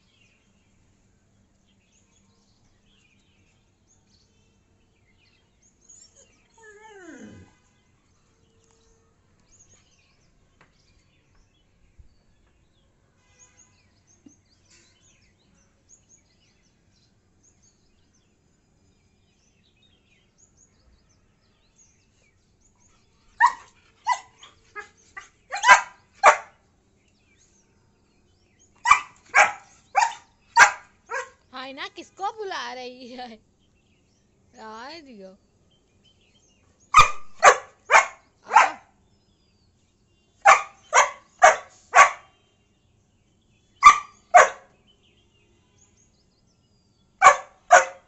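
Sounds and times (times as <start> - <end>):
dog barking: 23.4 - 26.6, 28.8 - 31.4, 36.9 - 39.0, 40.4 - 42.3, 43.8 - 44.7, 47.2 - 48.0.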